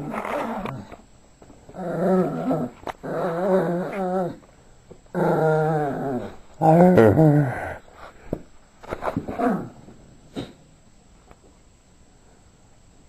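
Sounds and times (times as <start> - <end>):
small dog growling: 0.0 - 1.0, 1.7 - 4.4, 5.1 - 7.8, 9.3 - 9.8.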